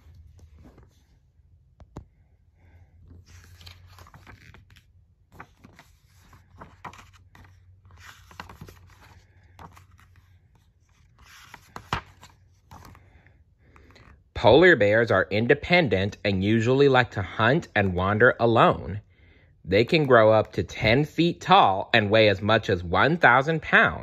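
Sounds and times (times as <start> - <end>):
book pages turning: 0.0 - 1.2, 3.1 - 13.1.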